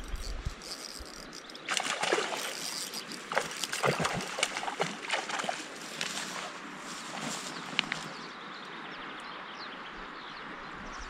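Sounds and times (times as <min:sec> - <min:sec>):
fish splashing in water: 0:00.6 - 0:08.2.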